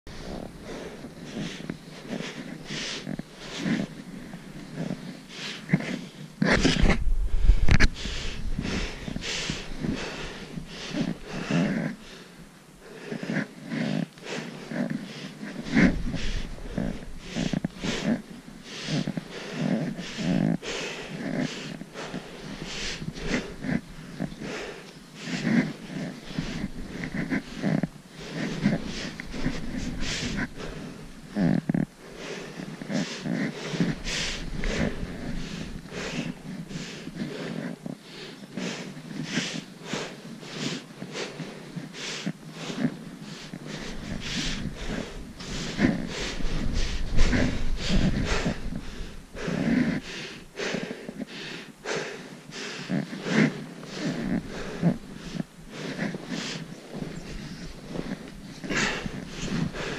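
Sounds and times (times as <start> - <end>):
trekking poles planted in snow: 0.1 - 59.9
low rumble: 6.6 - 11.5.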